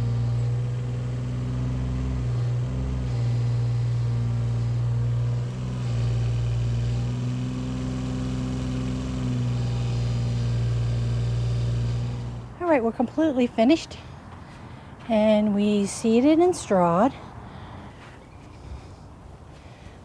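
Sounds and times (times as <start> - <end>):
diesel engine running: 0.0 - 19.8.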